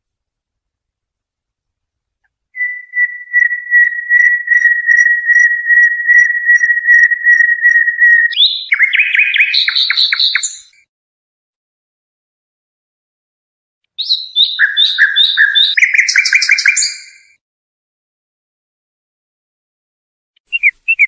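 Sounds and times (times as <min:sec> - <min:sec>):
bird whistling a long note: 0:02.6 - 0:10.7, 0:14.0 - 0:17.4
bird chirps: 0:02.6 - 0:10.8, 0:14.0 - 0:17.4, 0:20.5 - 0:21.0.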